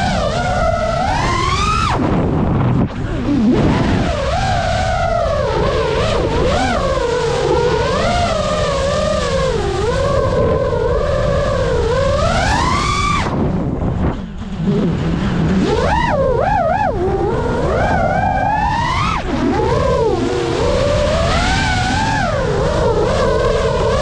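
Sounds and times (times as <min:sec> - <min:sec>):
drone propellers whining: 0:00.0 - 0:24.0
low rush of wind: 0:00.0 - 0:24.0.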